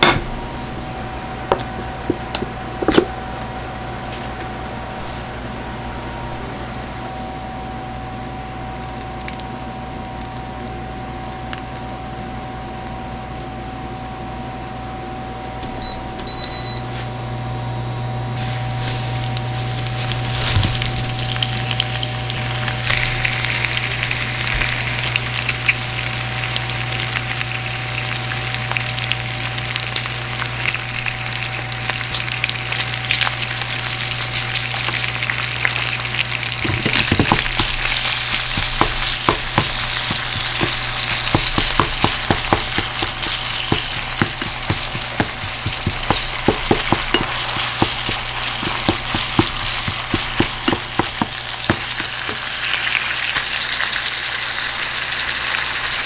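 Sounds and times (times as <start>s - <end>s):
meat sizzling in a frying pan: 18.4s - 56.0s
chopsticks and spatula scraping pan: 36.6s - 52.5s.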